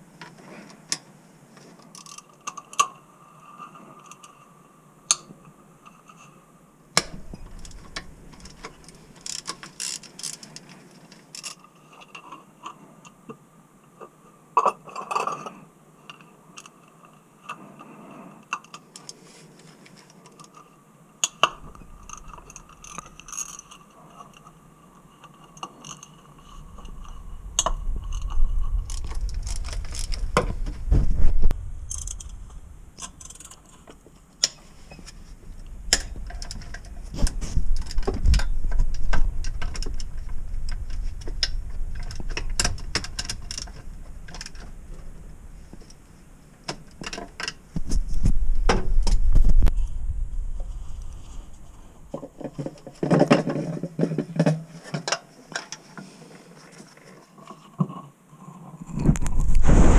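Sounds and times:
heavy knocking and rubbing: 0:26.4 - 0:53.1.

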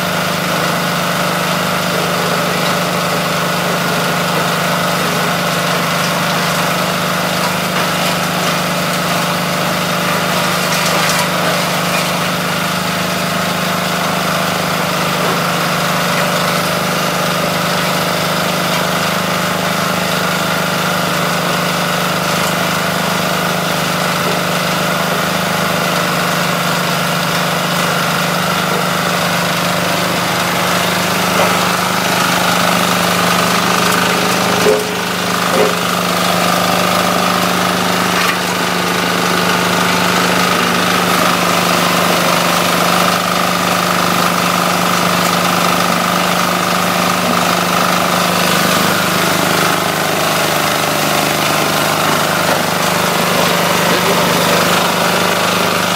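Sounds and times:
small engine humming: 0:00.0 - 0:55.9.

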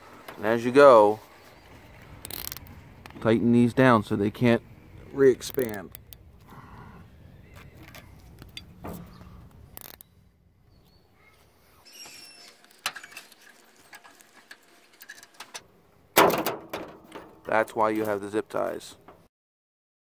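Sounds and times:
zip ties being pulled tight: 0:02.2 - 0:02.7, 0:09.7 - 0:10.1
knocks of handling a spring: 0:02.2 - 0:03.2, 0:07.6 - 0:10.2, 0:12.1 - 0:18.2.

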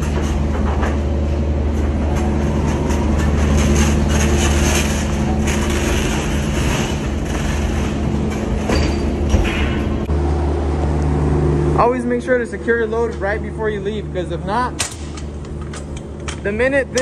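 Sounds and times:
low engine hum: 0:00.0 - 0:16.5
pallet rattling on metal floor: 0:01.7 - 0:10.0.

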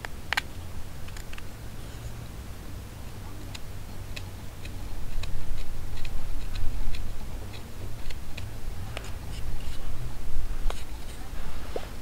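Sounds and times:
knife shaving cuts in wood: 0:04.1 - 0:09.9.

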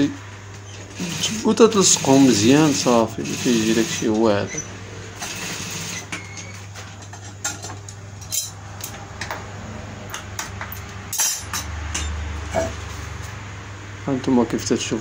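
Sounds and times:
sewing machine motor humming: 0:00.6 - 0:04.6, 0:05.2 - 0:06.6.

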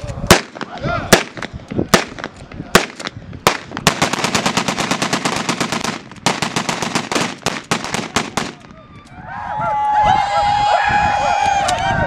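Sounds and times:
rapid string of gun bangs: 0:00.3 - 0:08.6
rifle shots: 0:00.3 - 0:08.7.

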